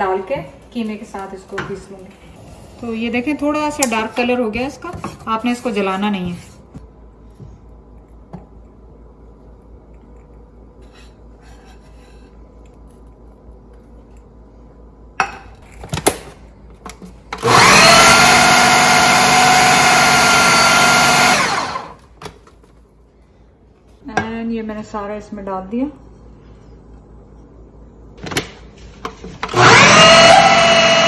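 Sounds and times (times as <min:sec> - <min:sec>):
food processor motor whine: 0:17.3 - 0:22.0, 0:29.4 - 0:31.0.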